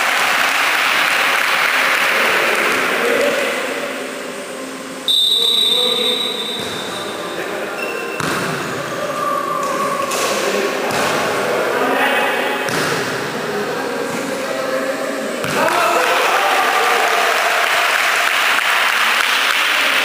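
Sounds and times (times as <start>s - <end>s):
players' voices: 0.0s - 20.0s
referee's whistle: 5.1s - 7.2s
volleyball being struck: 6.4s - 7.0s, 8.1s - 8.8s, 12.6s - 13.2s.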